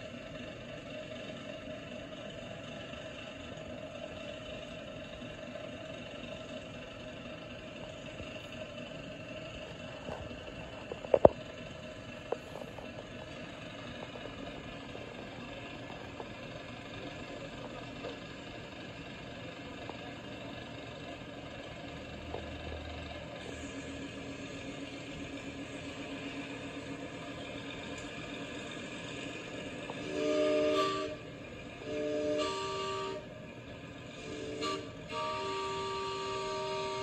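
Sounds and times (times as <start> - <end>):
steady low rumble: 0.1 - 30.0
steam locomotive whistle blasts: 29.9 - 33.4, 34.1 - 37.0.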